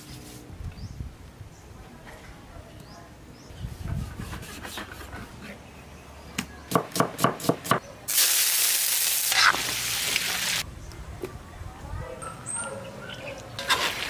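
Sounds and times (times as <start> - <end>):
meat sizzling in hot oil: 8.1 - 10.6.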